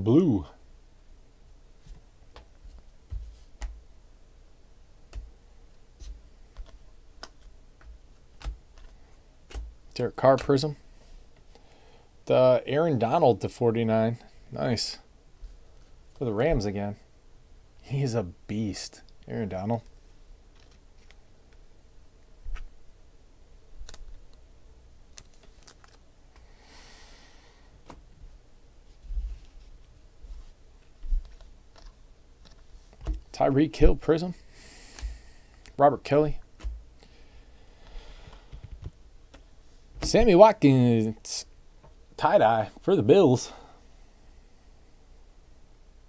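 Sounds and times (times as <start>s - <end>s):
cards clicking and tapping: 6.0s - 9.8s.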